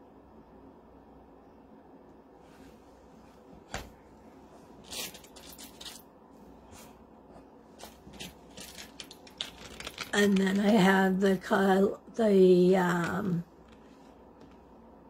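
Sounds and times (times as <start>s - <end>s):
rustling and handling noise: 2.3s - 11.0s, 12.7s - 14.9s.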